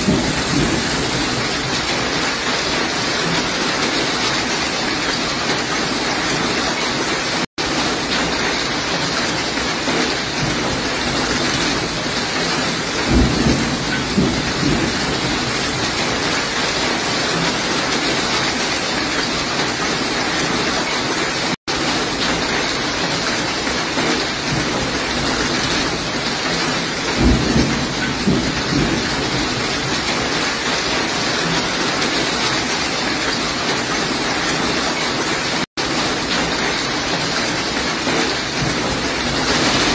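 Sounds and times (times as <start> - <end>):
low rumbles of thunder: 0.0 - 2.2, 10.4 - 16.5, 24.4 - 30.4
heavy rain and hail: 0.0 - 39.9.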